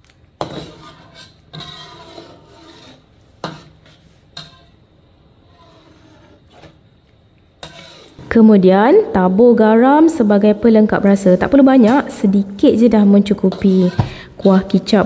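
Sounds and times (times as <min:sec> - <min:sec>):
utensil scraping pan: 0:00.4 - 0:04.8, 0:05.4 - 0:06.8, 0:07.6 - 0:08.4, 0:13.4 - 0:14.8.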